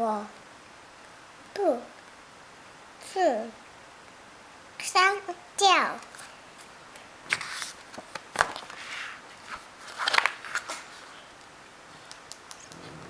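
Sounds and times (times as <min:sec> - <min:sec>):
paper page rustling: 0:07.3 - 0:11.2.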